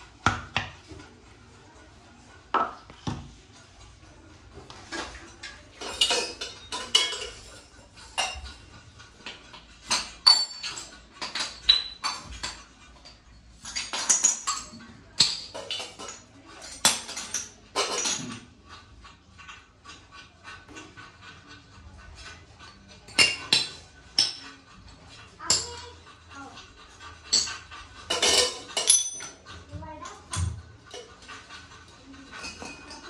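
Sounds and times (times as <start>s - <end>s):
brass utensils clinking: 28.1s - 29.4s.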